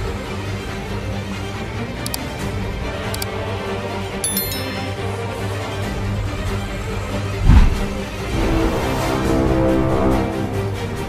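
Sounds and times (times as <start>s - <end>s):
short bright chime: 4.2s - 5.4s
background music with sustained tones: 4.2s - 11.0s.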